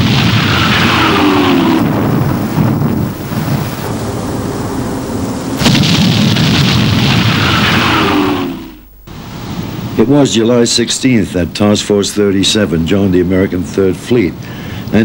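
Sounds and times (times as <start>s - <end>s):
heavy gun boom: 0.0s - 8.9s
long rumbling roll: 0.0s - 10.1s.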